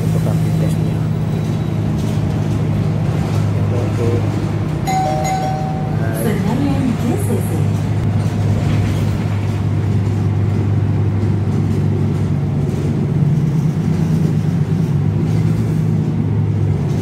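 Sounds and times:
bus engine and road drone: 0:00.0 - 0:17.0.

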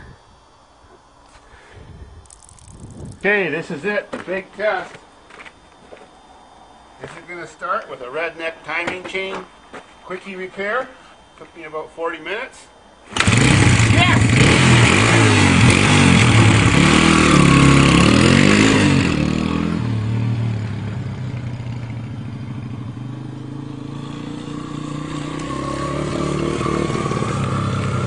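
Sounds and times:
dirt bike engine revving: 0:13.1 - 0:28.0.

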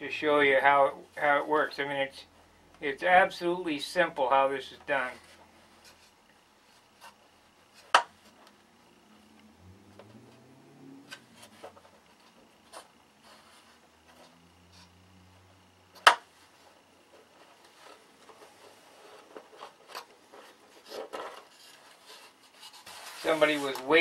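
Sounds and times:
hand tool scraping: 0:17.6 - 0:24.0.

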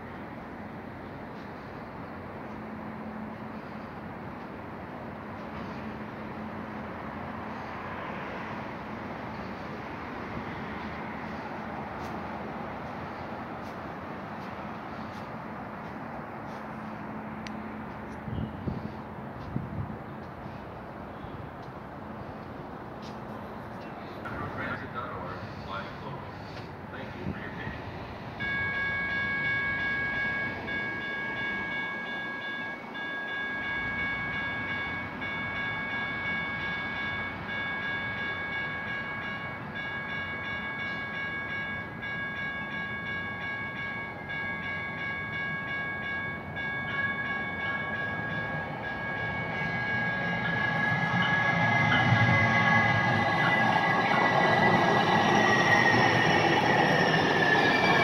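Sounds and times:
light-rail train running: 0:00.0 - 0:58.0
crossing warning bell: 0:28.3 - 0:58.0.

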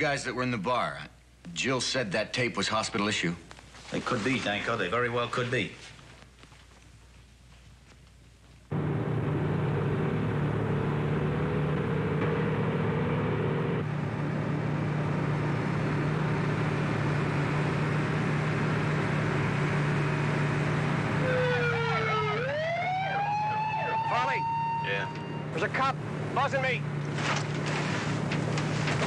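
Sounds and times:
vehicle engine and road noise: 0:08.1 - 0:29.0
police siren wailing: 0:21.0 - 0:25.6.

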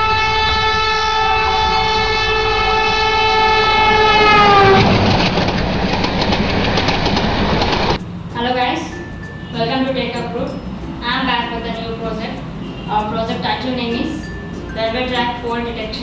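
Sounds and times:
train horn blast: 0:00.0 - 0:05.1.

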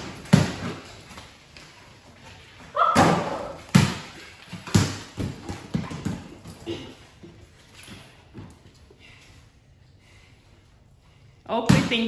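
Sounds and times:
ball bouncing on concrete: 0:00.0 - 0:01.7, 0:02.6 - 0:06.6.

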